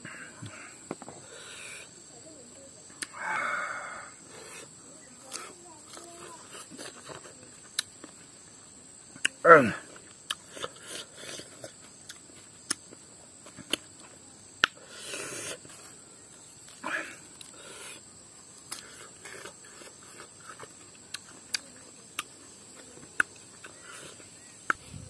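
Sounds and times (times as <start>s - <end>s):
high-pitched insect drone: 0.6s - 6.7s.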